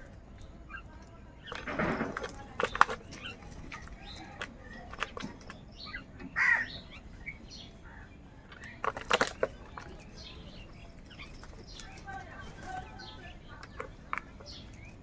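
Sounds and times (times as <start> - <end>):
crows pecking plastic tub: 0.0 - 15.0
small birds chirping: 0.0 - 15.0
crow cawing: 6.4 - 6.8.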